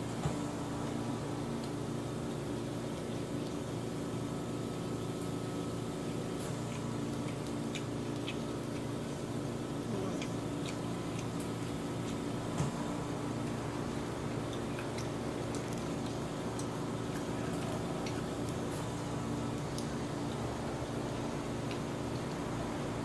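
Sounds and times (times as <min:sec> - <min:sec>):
steady mechanical hum: 0:00.0 - 0:23.0
chewing: 0:06.4 - 0:22.6.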